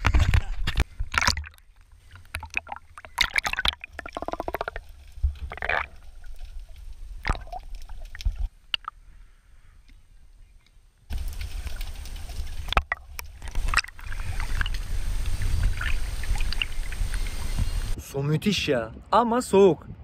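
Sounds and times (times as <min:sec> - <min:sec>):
sea water splashing: 0:00.8 - 0:09.0, 0:11.1 - 0:18.0.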